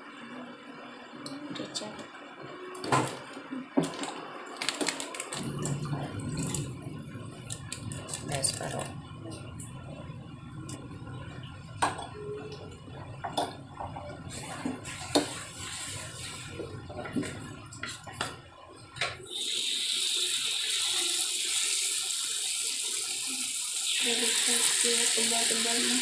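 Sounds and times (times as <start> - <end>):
batter frying in hot oil: 13.4 - 18.3, 19.1 - 26.0.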